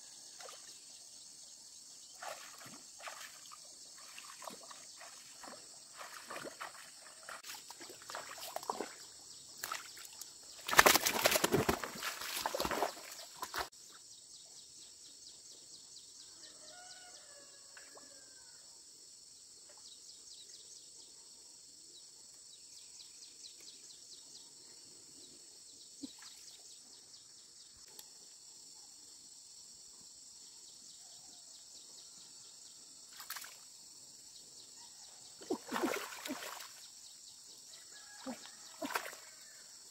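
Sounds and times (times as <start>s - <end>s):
feet splashing through muddy water: 2.2s - 13.7s, 35.4s - 36.8s, 38.2s - 39.3s.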